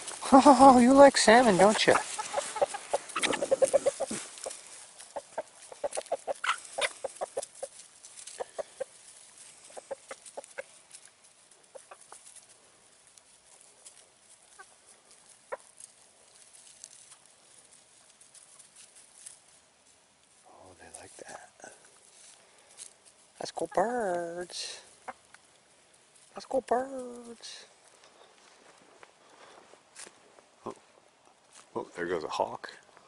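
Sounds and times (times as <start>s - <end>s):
chickens clucking: 0.0s - 19.4s, 21.3s - 28.1s.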